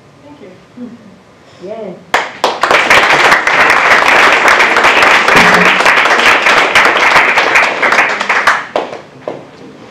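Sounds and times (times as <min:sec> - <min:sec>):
audience applauding: 0:02.1 - 0:09.1.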